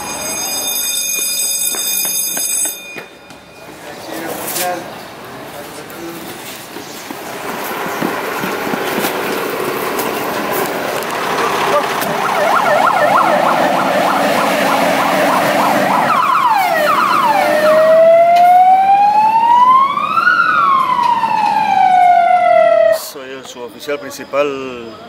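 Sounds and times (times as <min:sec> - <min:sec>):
engine and road noise: 0:02.4 - 0:25.0
fire engine siren: 0:10.9 - 0:23.2.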